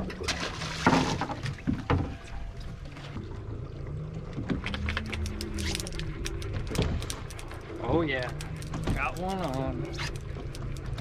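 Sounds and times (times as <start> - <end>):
low steady hum: 0.0 - 11.0
water lapping against boat hull: 0.0 - 11.0.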